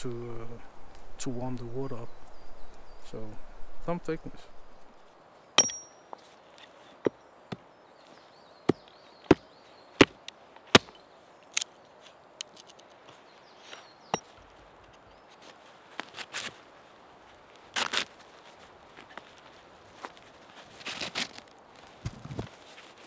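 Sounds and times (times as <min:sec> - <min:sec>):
hatchet chopping wood: 0:05.6 - 0:06.0, 0:10.0 - 0:11.0.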